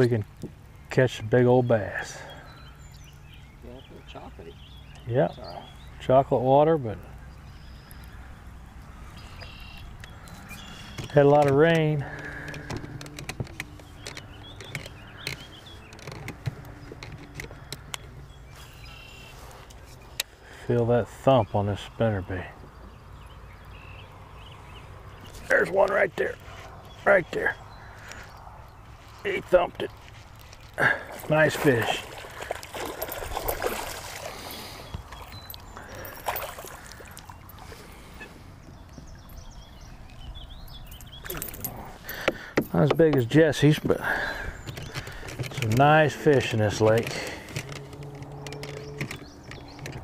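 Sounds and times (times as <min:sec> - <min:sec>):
water sounds: 0:27.2 - 0:49.1
fish splashing at surface: 0:31.1 - 0:34.8.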